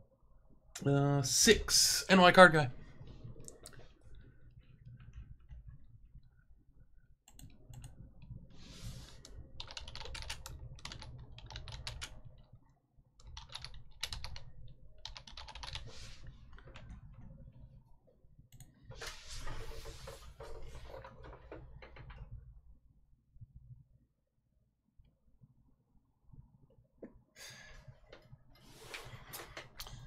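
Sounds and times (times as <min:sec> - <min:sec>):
computer keyboard typing: 0:09.6 - 0:12.2, 0:13.2 - 0:15.9.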